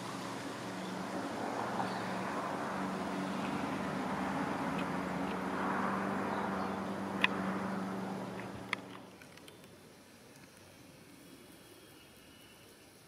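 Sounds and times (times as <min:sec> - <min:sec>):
distant jet roar: 0:00.0 - 0:09.1.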